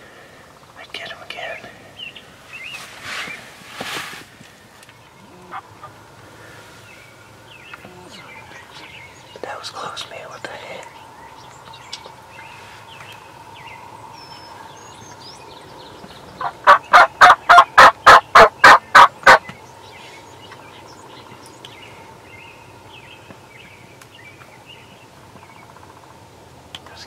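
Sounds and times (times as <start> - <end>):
faint songbird chirps: 0.0 - 3.6, 4.6 - 18.1, 18.8 - 27.0
turkey yelping: 16.4 - 19.4.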